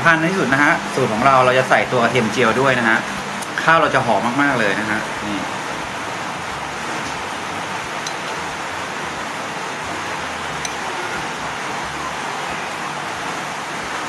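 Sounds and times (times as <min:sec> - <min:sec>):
fan-like hiss: 0:00.0 - 0:14.0.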